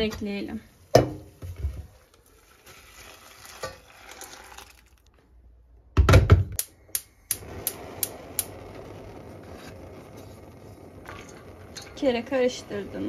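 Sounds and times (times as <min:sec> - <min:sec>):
water pouring into pot: 0:01.8 - 0:05.1
gas igniter clicking: 0:06.6 - 0:08.8
gas burner hissing: 0:06.6 - 0:13.0.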